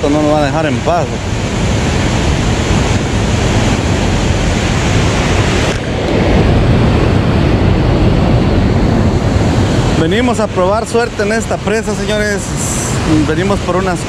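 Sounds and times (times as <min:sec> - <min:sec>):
wind rushing across microphone: 0:00.0 - 0:14.0.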